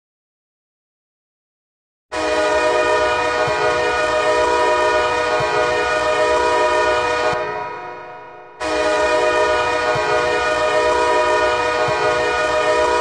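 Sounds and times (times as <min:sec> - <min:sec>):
goal horn blast: 0:02.1 - 0:08.0, 0:08.6 - 0:13.0.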